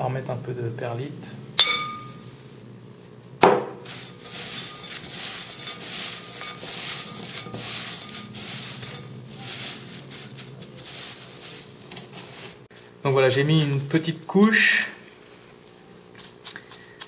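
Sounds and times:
grains clinking against glass: 3.8s - 12.2s
hands mixing gritty substrate: 3.8s - 15.0s.

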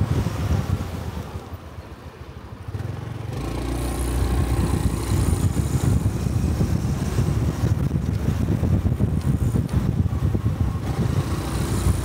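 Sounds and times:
wind noise on microphone: 0.0s - 1.7s, 2.6s - 12.0s
motorcycle engine running: 2.7s - 12.0s.

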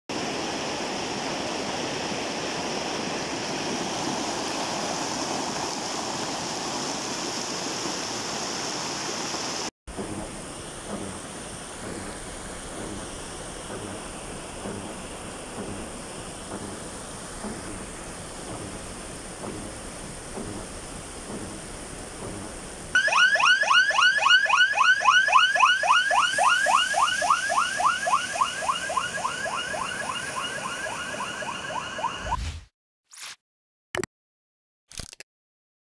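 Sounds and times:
heavy rain hiss: 0.1s - 23.0s, 25.3s - 31.2s
floodwater rushing: 0.1s - 32.2s
electronic siren rising sweeps: 23.0s - 32.6s.

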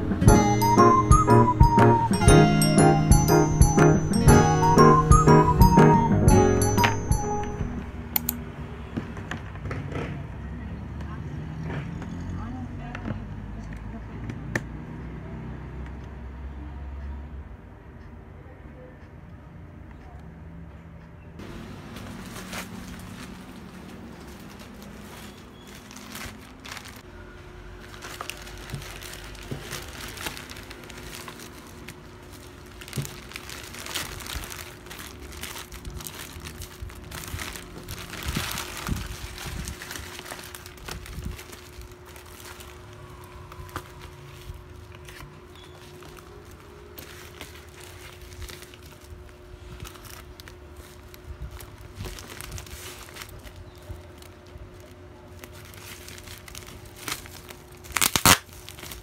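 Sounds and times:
plastic bag and bubble wrap crinkling: 21.8s - 27.1s, 27.8s - 59.0s.

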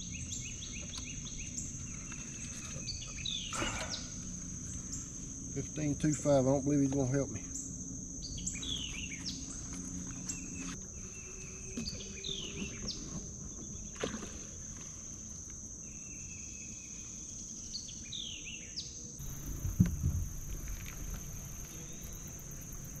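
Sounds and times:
crickets trilling: 0.0s - 23.0s
louder knocks: 19.2s - 21.6s
bird calling: 19.2s - 23.0s.

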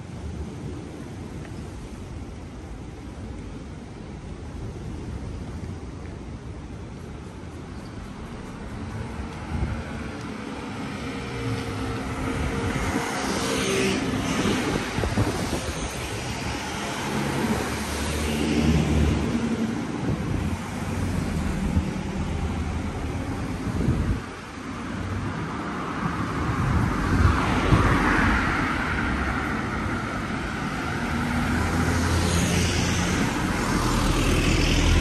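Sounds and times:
vehicle passing close by: 30.6s - 35.0s.

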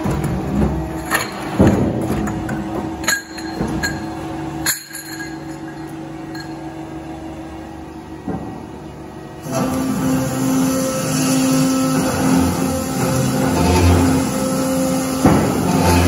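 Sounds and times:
low machine hum: 0.0s - 16.0s
steel tubes clinking: 2.3s - 6.9s.

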